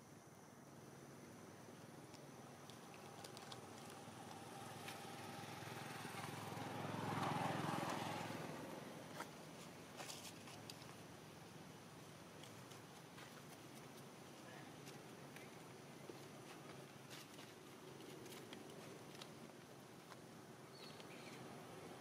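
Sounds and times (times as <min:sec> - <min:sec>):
vehicle engine passing by: 0:03.6 - 0:09.1.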